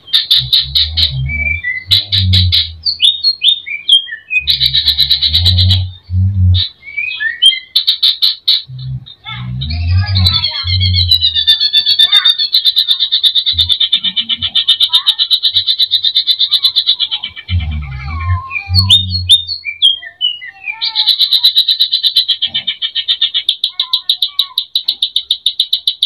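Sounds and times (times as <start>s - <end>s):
bird singing a trilling song: 0.0s - 26.0s
low thumps: 0.3s - 3.1s, 4.4s - 6.8s, 8.6s - 11.3s.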